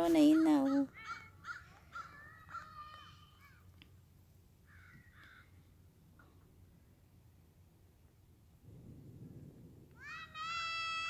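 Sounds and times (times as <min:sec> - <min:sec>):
faint bird calls: 0:00.2 - 0:03.8, 0:04.6 - 0:06.5.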